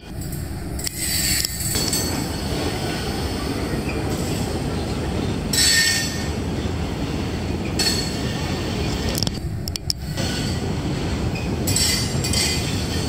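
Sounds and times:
rumble of train wheels on rails: 0.0s - 13.0s.

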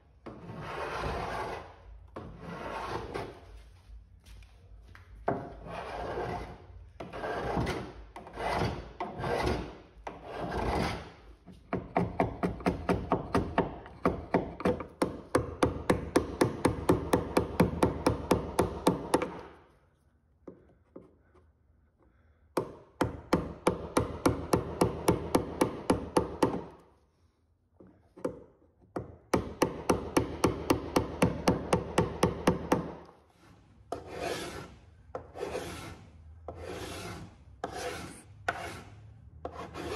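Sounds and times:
hand rasp filing wood: 0.3s - 3.3s, 5.6s - 11.1s, 29.4s - 39.9s.

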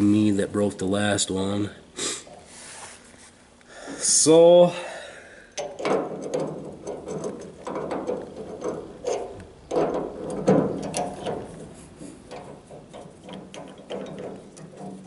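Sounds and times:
glass and metal clicks and scrapes: 5.6s - 15.0s.

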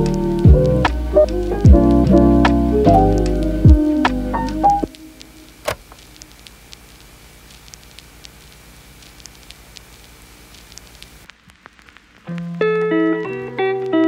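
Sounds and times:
background music: 0.0s - 5.7s
faint crackle: 0.0s - 14.0s
small clicks: 4.8s - 12.5s.

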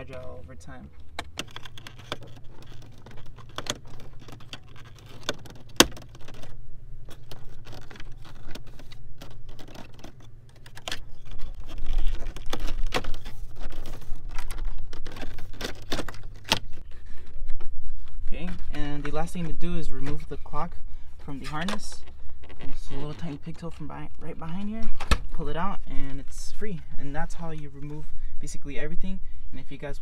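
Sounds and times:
plastic trim clicking and creaking: 0.9s - 17.6s, 21.4s - 25.4s.

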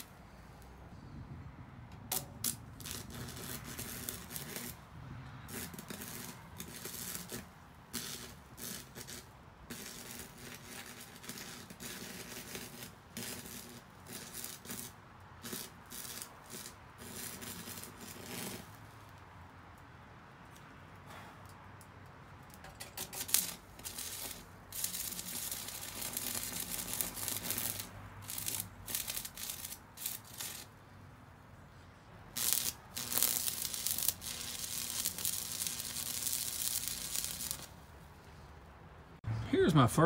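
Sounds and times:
welding arc crackling: 2.1s - 19.4s, 22.6s - 30.8s, 32.3s - 37.9s.

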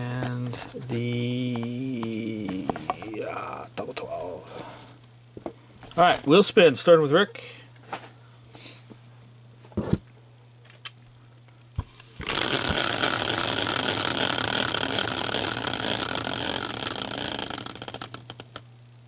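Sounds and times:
caster wheel whirring and rattling: 12.1s - 18.7s.

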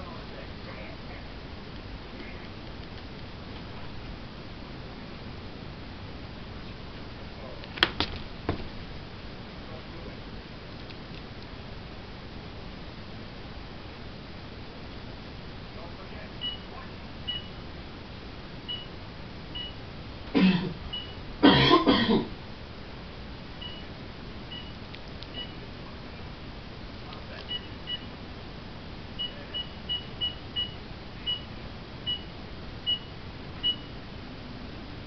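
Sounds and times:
person coughing: 20.4s - 20.8s, 21.4s - 22.3s.

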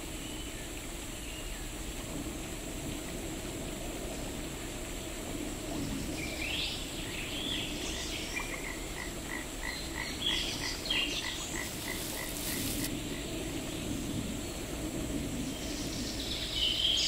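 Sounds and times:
low background rush: 0.0s - 17.0s
frog croaking: 8.2s - 12.9s
rising bird chirps: 10.3s - 13.1s
brief hiss: 11.5s - 13.0s.

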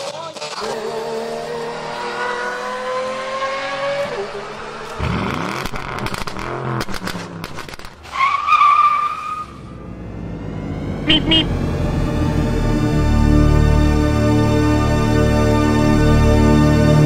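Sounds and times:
engine revving: 0.0s - 8.0s, 9.4s - 17.0s
car rushing past: 0.4s - 12.5s.

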